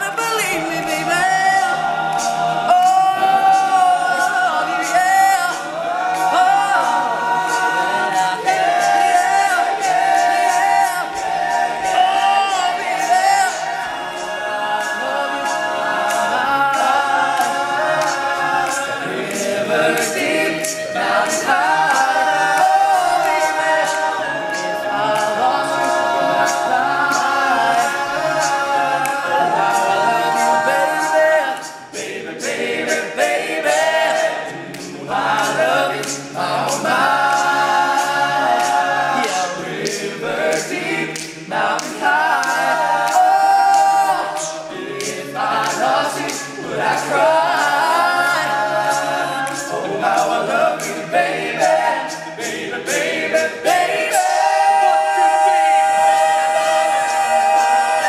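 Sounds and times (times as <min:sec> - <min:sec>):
male a cappella group singing: 0:00.0 - 0:58.0.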